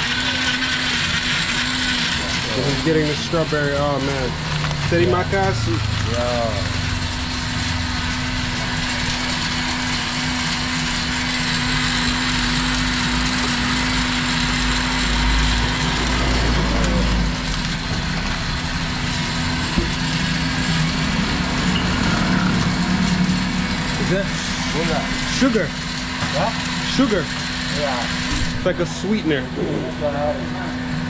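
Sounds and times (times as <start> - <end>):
motor humming: 0.0 - 31.0.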